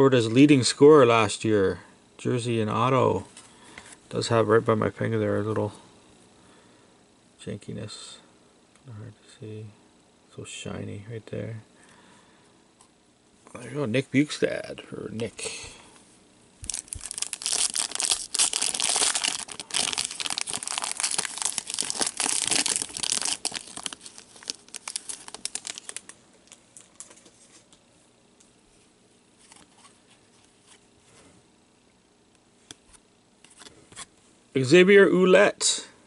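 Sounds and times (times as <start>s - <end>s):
foil wrapper tearing and crinkling: 16.6s - 27.2s.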